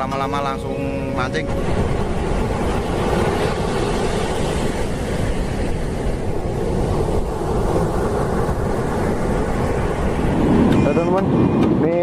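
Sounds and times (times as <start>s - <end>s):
ocean waves breaking: 0.0s - 12.0s
wind buffeting microphone: 0.0s - 12.0s.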